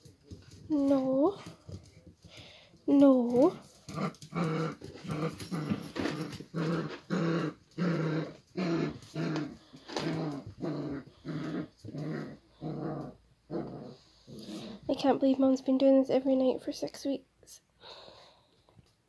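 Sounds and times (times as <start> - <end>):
puppies growling: 3.3 - 14.9.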